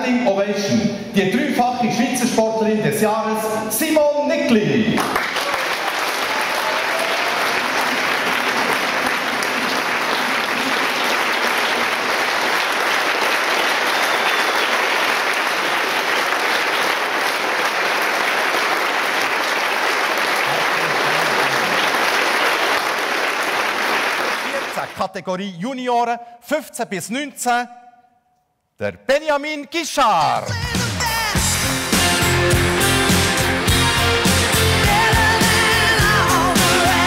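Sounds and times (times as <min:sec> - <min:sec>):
audience applauding: 0:05.0 - 0:25.0.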